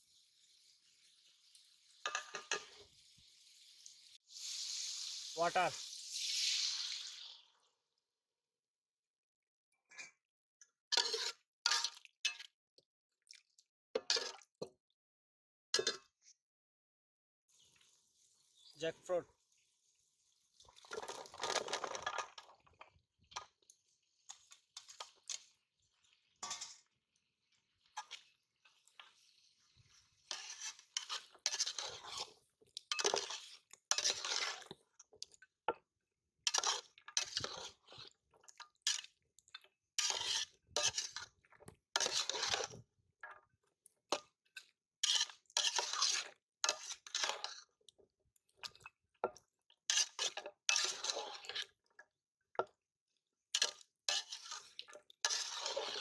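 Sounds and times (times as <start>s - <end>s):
spatula scraping metal pot: 2.0s - 2.9s, 10.9s - 12.1s, 26.4s - 26.9s, 27.9s - 35.3s, 36.4s - 42.9s, 45.0s - 47.7s, 49.9s - 51.8s, 53.6s - 56.0s
fruit pieces tumbling into pot: 20.8s - 22.6s.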